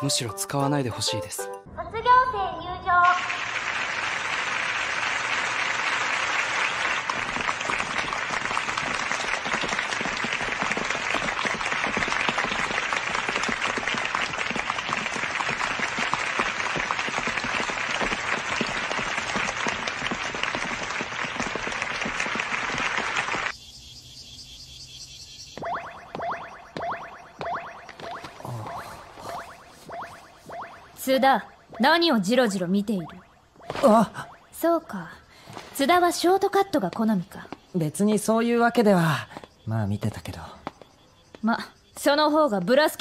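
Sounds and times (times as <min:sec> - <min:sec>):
crowd applauding: 0:03.1 - 0:23.5.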